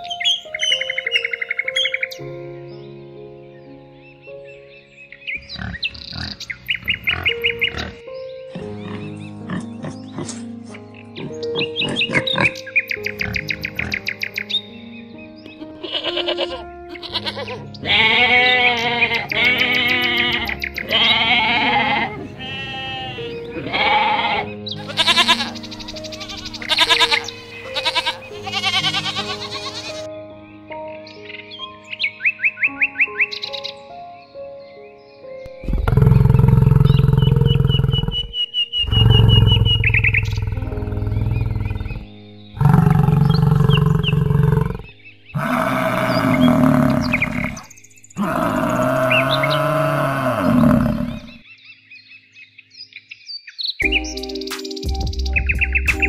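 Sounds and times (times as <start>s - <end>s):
soft background music: 0.0s - 52.9s, 53.8s - 56.0s
small birds chirping: 0.0s - 56.0s
sheep bleating: 15.8s - 30.1s, 45.4s - 51.3s
cow mooing: 16.0s - 25.5s, 35.6s - 51.4s.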